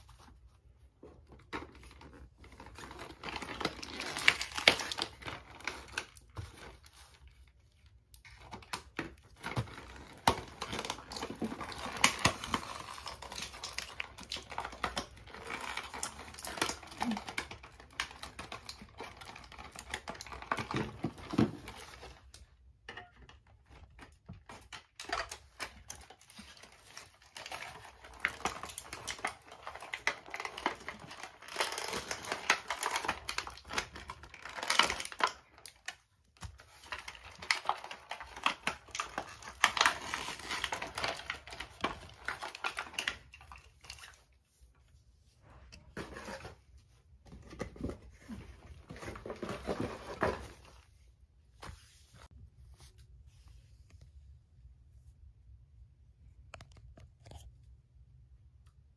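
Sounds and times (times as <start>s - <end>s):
plastic packaging crinkling: 1.2s - 22.5s, 23.7s - 44.5s
cardboard rustling: 23.8s - 53.9s.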